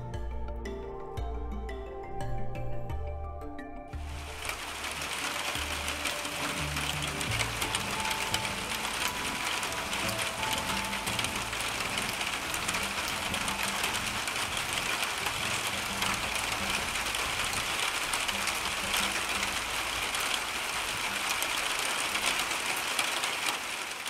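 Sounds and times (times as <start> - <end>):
steady rain pattering: 4.0 - 24.0.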